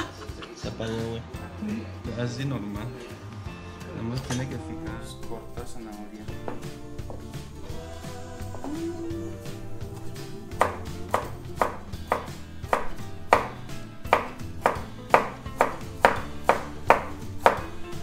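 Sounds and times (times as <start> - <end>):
knife chopping carrot on board: 10.5 - 18.0.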